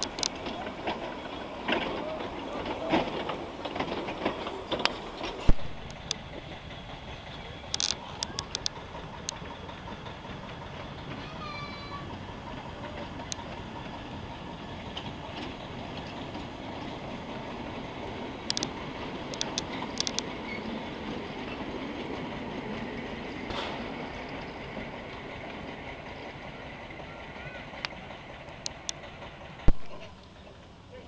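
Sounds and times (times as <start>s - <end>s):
steam train rumbling past: 0.0s - 31.0s
sharp clicks: 7.7s - 9.4s, 18.4s - 20.3s.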